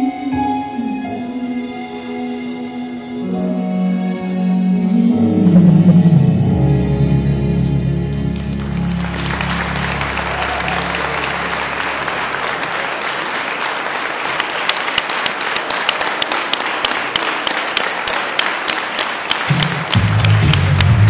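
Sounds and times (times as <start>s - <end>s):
slow waltz music: 0.0s - 13.4s
audience applauding: 8.3s - 21.0s.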